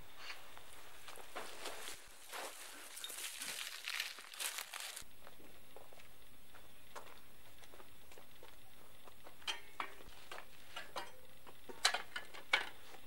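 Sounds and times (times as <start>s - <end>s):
footsteps scuffing on earth and brick: 0.7s - 8.6s.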